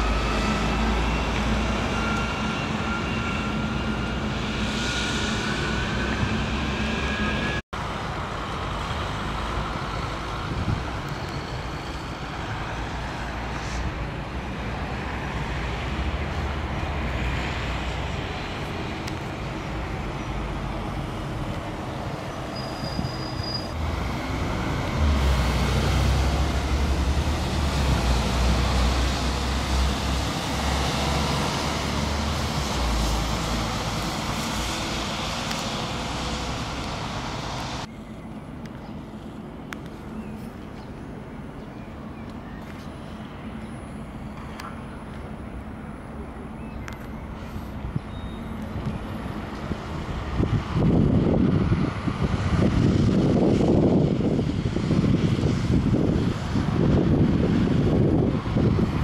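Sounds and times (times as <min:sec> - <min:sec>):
bus engine low rumble: 0:00.0 - 0:59.0
street traffic: 0:00.0 - 0:59.0.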